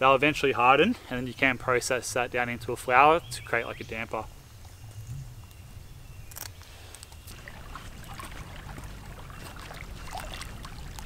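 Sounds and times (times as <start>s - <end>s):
wind rumbling on microphone: 2.1s - 11.0s
small waves lapping: 6.8s - 11.0s.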